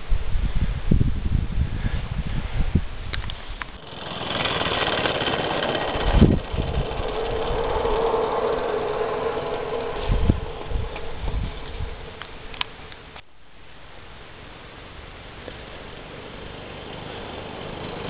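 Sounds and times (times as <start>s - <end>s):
steam locomotive hissing: 3.7s - 13.2s, 15.1s - 18.0s
humming note: 5.1s - 13.2s
low thumps: 5.9s - 13.3s.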